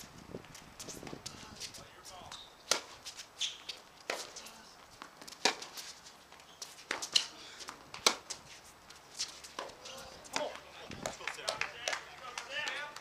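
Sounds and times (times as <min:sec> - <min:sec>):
tennis balls struck by rackets: 0:00.0 - 0:13.0.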